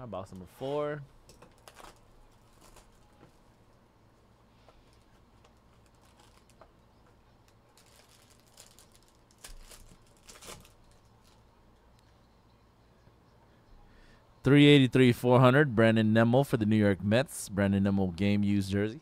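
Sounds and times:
foil pack crinkling: 1.4 - 3.1, 5.7 - 6.6, 7.7 - 11.4.

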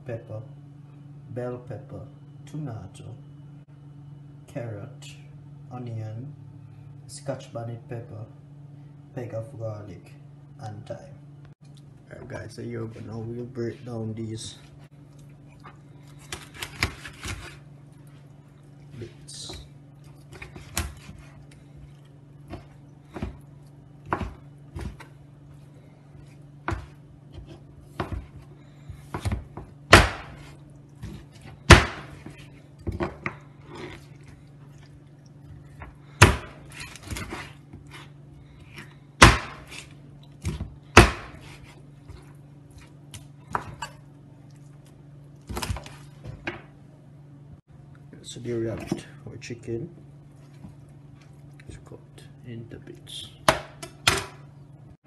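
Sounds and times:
knife chopping on cutting board: 24.0 - 25.1, 26.6 - 28.4, 29.0 - 33.4, 36.2 - 38.1, 38.7 - 41.8.

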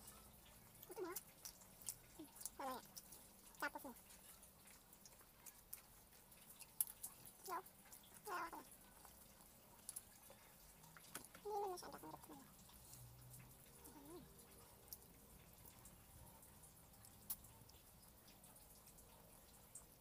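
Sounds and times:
cat meowing: 7.5 - 8.7.

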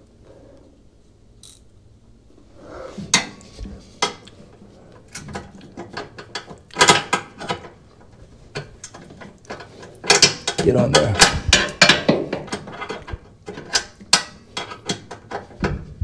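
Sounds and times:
ratchet wrench clicking: 1.4 - 1.6.

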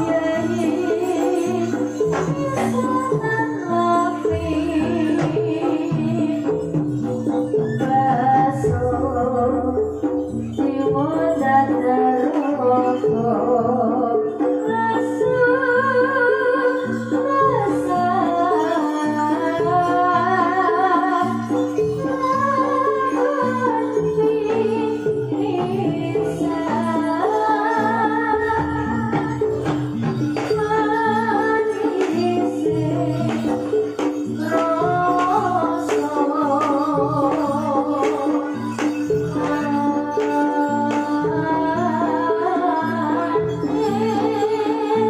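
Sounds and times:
drum and jingle strikes: 0.0 - 12.6, 28.5 - 41.3
metal-keyed percussion melody: 0.0 - 45.0
person singing: 0.0 - 45.0.

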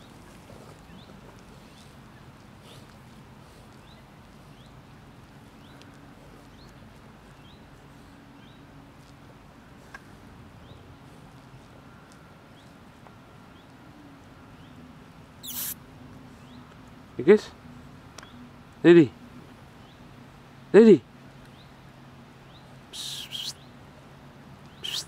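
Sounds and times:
faint short high chirps: 15.4 - 15.8, 22.9 - 23.6, 24.8 - 25.0.

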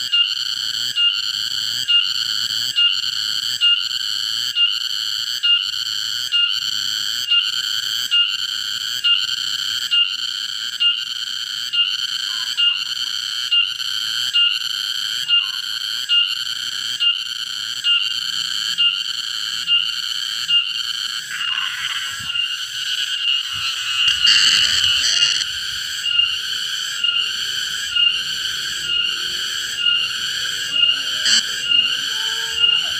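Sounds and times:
cicada buzzing: 0.0 - 32.9.

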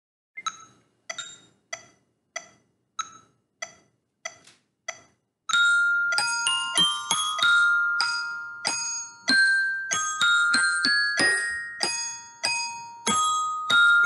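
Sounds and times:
glockenspiel playing a minuet: 5.5 - 14.0.

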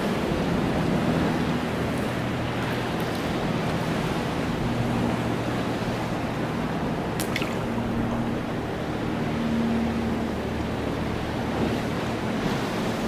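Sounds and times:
pool water sloshing: 1.4 - 11.2
low steady hum: 1.4 - 11.5.

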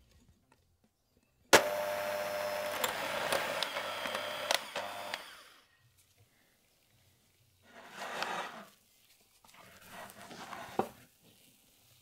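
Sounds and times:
electric hand mixer whipping cream: 1.6 - 5.6.

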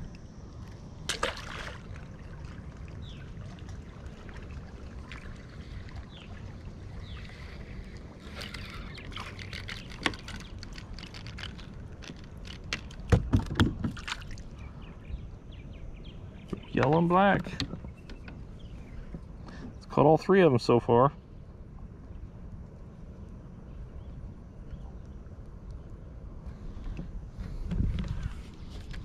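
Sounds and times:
low steady rumble: 0.0 - 29.0
rod and reel clicks and knocks: 8.2 - 14.0
thumps against kayak: 12.7 - 14.2.

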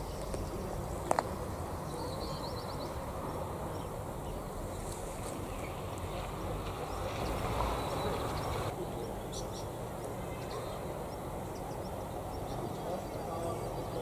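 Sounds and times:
wind rumble on microphone: 0.0 - 8.8
small birds chirping: 0.0 - 14.0.

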